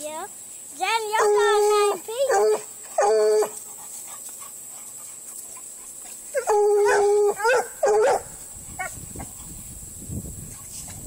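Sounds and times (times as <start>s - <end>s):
hound baying: 2.3s - 5.7s, 6.3s - 8.9s.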